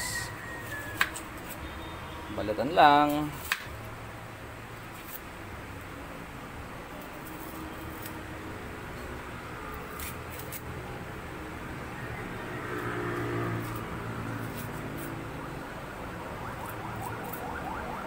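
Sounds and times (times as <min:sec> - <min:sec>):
onion skin crackling: 0:02.5 - 0:03.9, 0:06.9 - 0:08.3, 0:09.7 - 0:10.8, 0:12.7 - 0:15.3.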